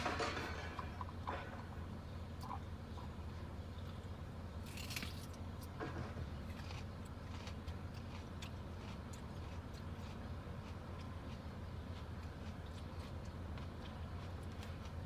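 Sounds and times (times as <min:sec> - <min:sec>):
trash knocking and clattering: 0:00.0 - 0:01.8
low engine hum: 0:00.0 - 0:15.0.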